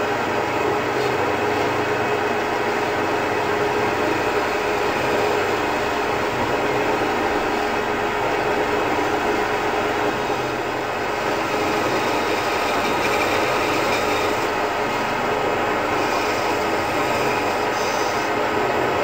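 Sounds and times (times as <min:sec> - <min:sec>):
scroll saw cutting wood: 0:11.2 - 0:14.6.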